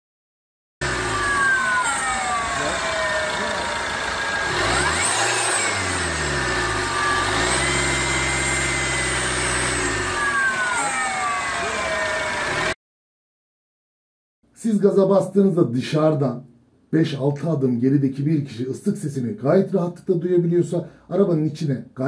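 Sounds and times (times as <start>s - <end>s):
car engine revving: 0.8s - 12.8s
turbocharger whistling: 0.8s - 12.8s.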